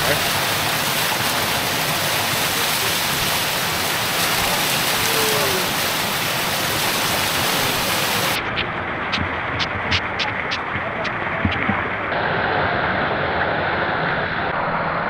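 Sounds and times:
water pouring from spouts: 0.0s - 12.1s.

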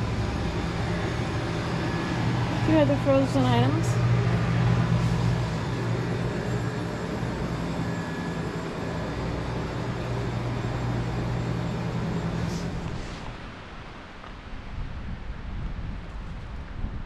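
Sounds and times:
freezer cases humming: 0.0s - 13.5s.

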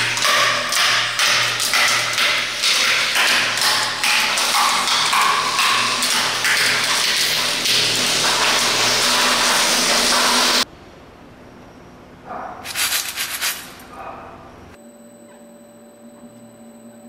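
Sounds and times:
sharp knocks and rattling: 0.0s - 10.6s.

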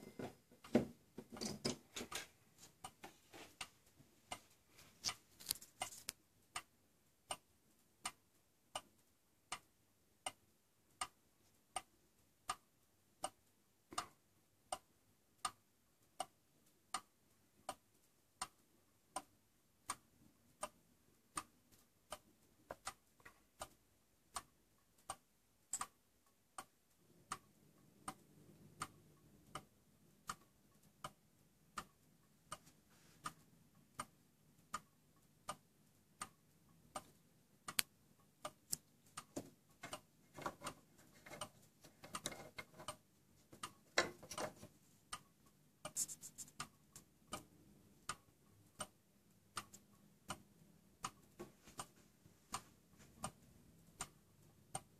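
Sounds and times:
soft clicks and rustles: 0.0s - 6.7s, 27.3s - 50.4s, 51.0s - 54.9s
wall clock ticking: 0.0s - 54.9s.

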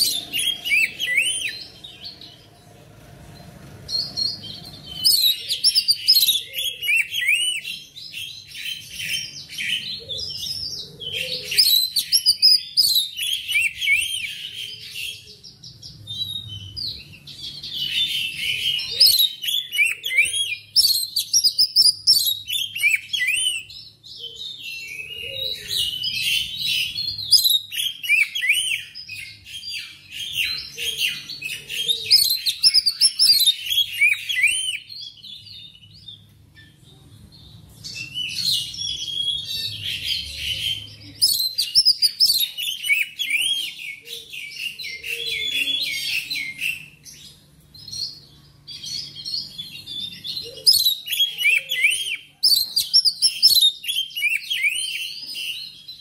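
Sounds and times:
bird singing whistled phrases: 0.0s - 1.6s, 4.0s - 7.8s, 38.0s - 47.0s, 49.0s - 55.7s.

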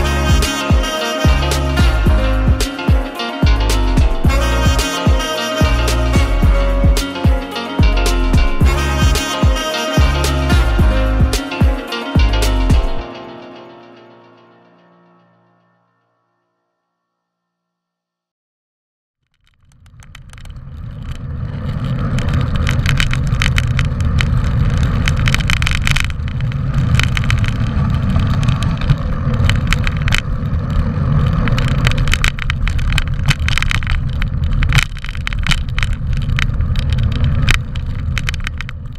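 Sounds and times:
bike rattling clicks: 19.3s - 38.9s
wind and tyres rumbling: 19.4s - 38.9s.

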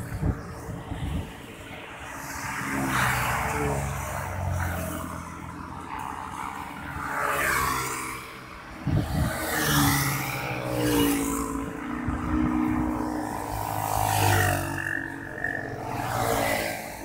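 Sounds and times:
rush of traffic: 0.0s - 17.0s.

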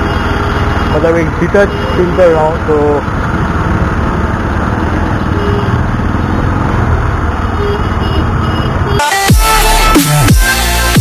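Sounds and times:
city traffic noise: 0.0s - 11.0s
electronic music: 8.8s - 11.0s.

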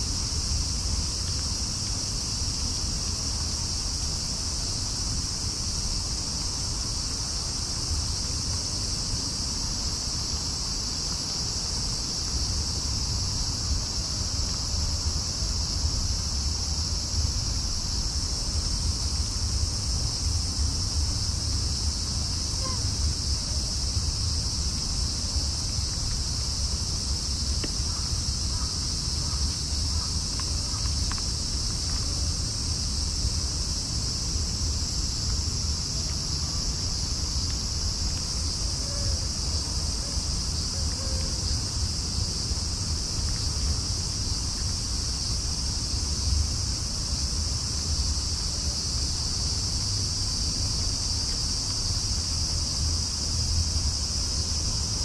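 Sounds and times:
night insects shrilling: 0.0s - 55.0s.

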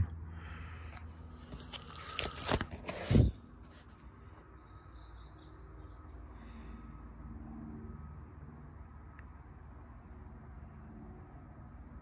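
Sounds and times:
paper and plastic rustling: 1.4s - 3.9s
album page turning: 1.5s - 3.8s.

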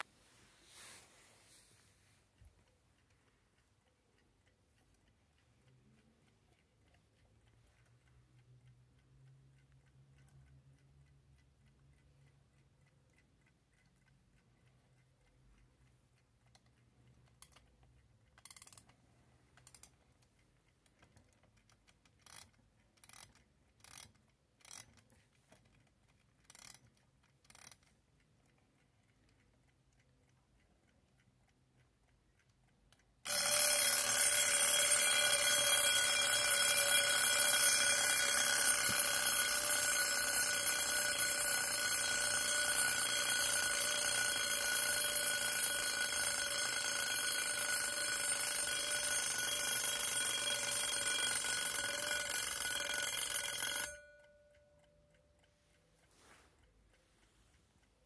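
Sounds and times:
faint clock clicks: 2.2s - 58.0s
alarm bell ringing: 33.3s - 54.9s.

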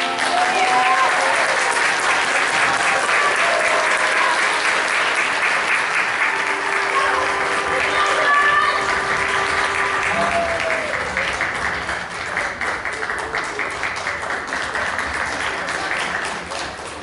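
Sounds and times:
music: 0.0s - 1.6s, 3.1s - 12.3s
audience applauding: 0.0s - 17.0s.

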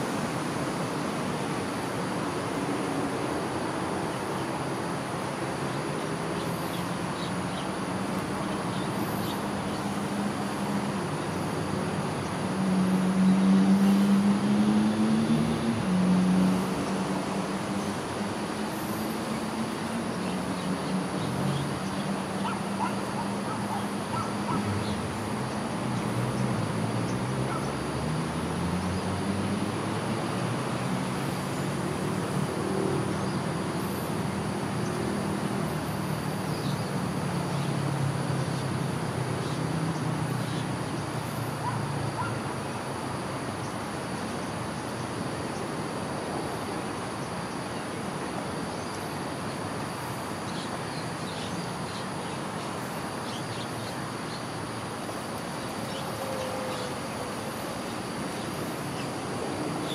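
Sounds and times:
high insect drone: 0.0s - 59.9s
traffic hum: 0.0s - 59.9s.

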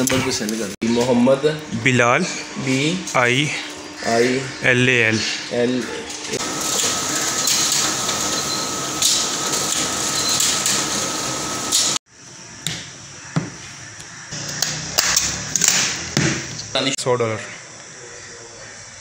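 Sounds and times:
photocopier printing whirr: 2.1s - 12.0s.

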